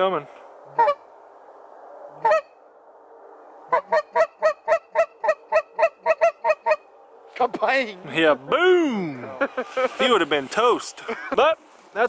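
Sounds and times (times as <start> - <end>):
goose honking: 0.7 - 1.1, 2.2 - 2.6, 3.7 - 6.9.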